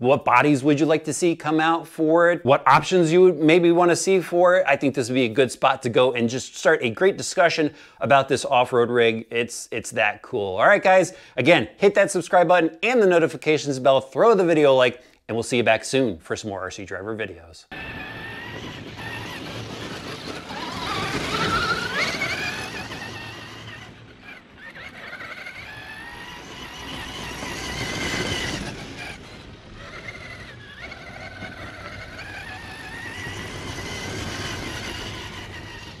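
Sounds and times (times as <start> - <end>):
rc car motor and gears whining: 17.7 - 36.0.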